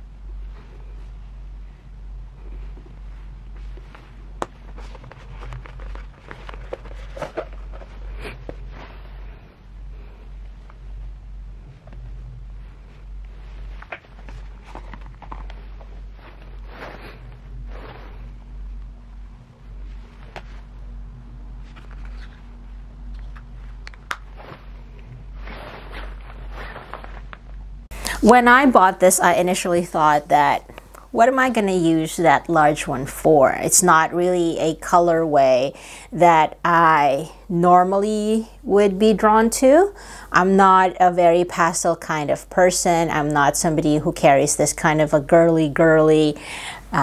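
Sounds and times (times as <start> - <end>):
low steady hum: 0.0 - 47.0
soft clicks and rustles of pouches: 2.6 - 9.0, 12.8 - 18.4.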